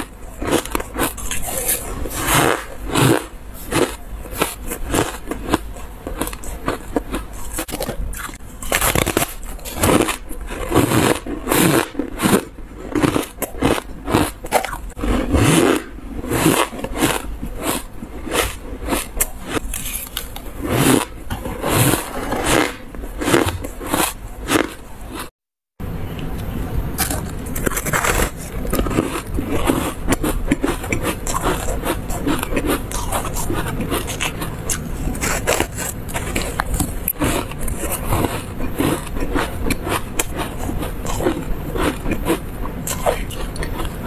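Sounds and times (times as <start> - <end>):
ice crunching while chewed: 0.0 - 25.3, 27.0 - 44.0.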